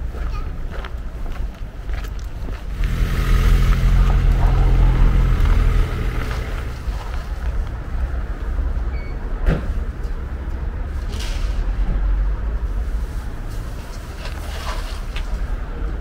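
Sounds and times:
motor vehicle engine running: 0:02.6 - 0:08.1.

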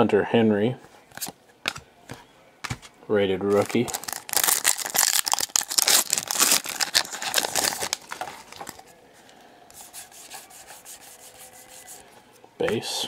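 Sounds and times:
cards rubbing together: 0:03.5 - 0:08.8, 0:09.7 - 0:12.0
wrapper tearing and crinkling: 0:03.5 - 0:08.8.

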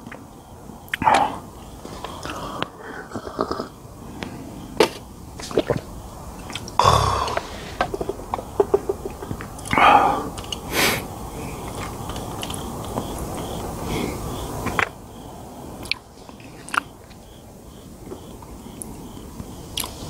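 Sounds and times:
breathy bursts: 0:06.8 - 0:08.1.

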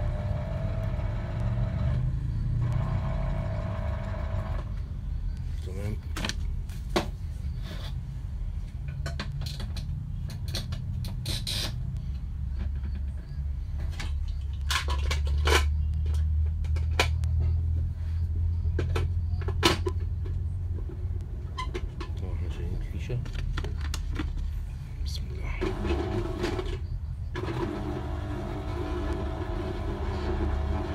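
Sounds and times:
plastic parts clicking and knocking: 0:08.8 - 0:11.8, 0:12.6 - 0:17.5, 0:23.0 - 0:24.4.

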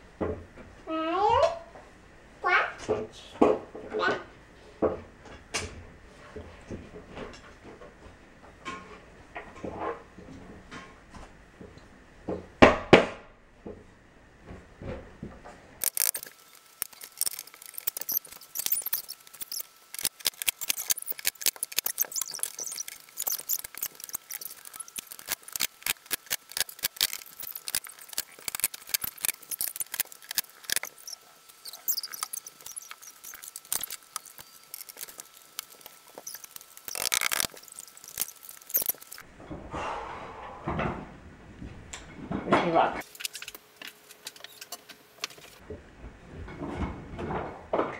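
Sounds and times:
rapid clicks and clatter: 0:15.8 - 0:39.2
squeaky chirps: 0:15.8 - 0:39.2.

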